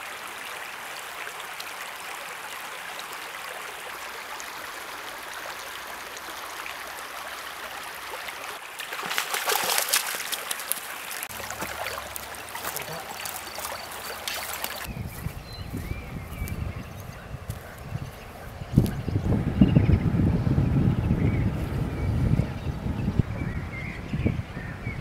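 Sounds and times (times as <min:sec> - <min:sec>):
stream flowing over stones: 0:00.0 - 0:14.9.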